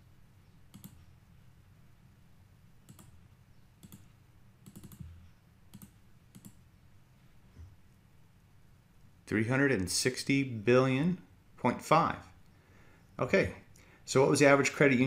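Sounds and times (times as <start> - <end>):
faint mouse clicks: 0.7 - 1.1, 2.8 - 3.2, 3.8 - 6.6.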